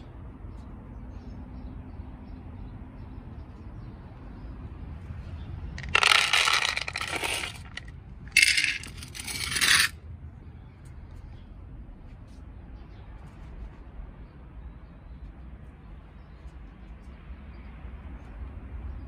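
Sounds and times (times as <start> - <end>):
dry kibble rattling into plastic container: 5.8 - 9.9.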